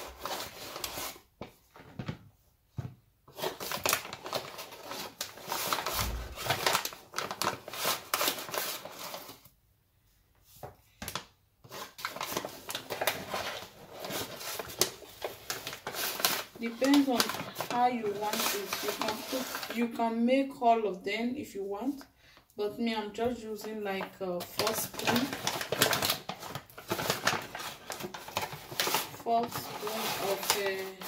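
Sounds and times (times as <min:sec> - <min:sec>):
paper bag crinkling: 0:03.3 - 0:09.4, 0:11.6 - 0:20.0, 0:24.4 - 0:31.0.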